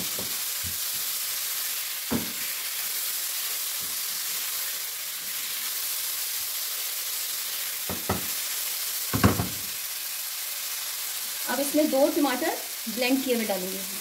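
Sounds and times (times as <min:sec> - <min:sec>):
chicken sizzling in a pan: 0:00.0 - 0:14.0
spatula knocking on pan: 0:02.1 - 0:02.4, 0:07.9 - 0:08.3, 0:09.1 - 0:09.6.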